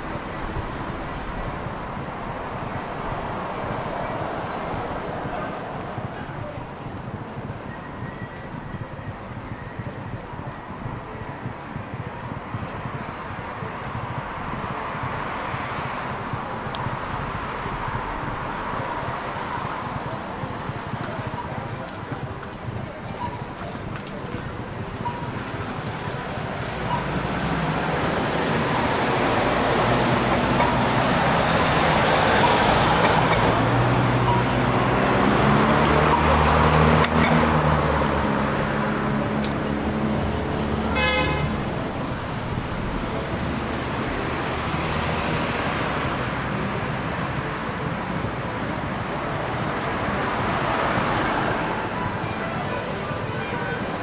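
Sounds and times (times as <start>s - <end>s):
cars passing: 0.0s - 54.0s
heavy vehicle engine hum: 0.0s - 54.0s
car horn beep: 40.9s - 41.6s.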